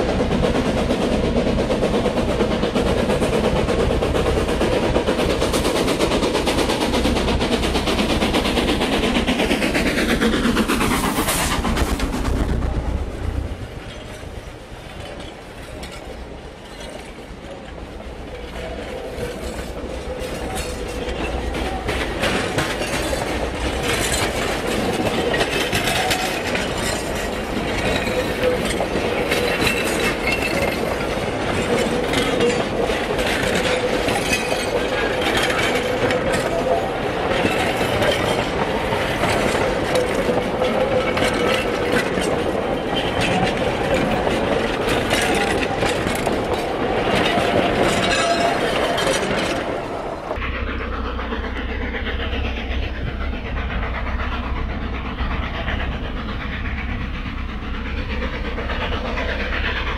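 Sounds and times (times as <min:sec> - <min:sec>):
freight wagons rumbling: 0:00.0 - 0:50.5
steam locomotive passing: 0:00.0 - 0:59.9
wheels clicking over rail joints: 0:13.4 - 0:50.4.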